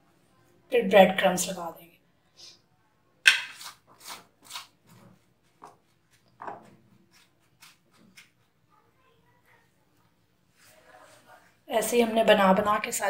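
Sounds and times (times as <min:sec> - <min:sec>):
breadcrumbs rustling and crunching: 0:03.5 - 0:08.6.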